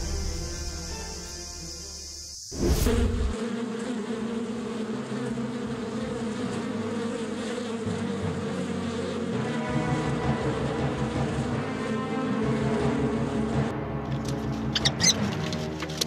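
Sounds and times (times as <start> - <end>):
music: 0.0 - 3.3, 7.8 - 16.0
wasps buzzing: 0.0 - 13.7.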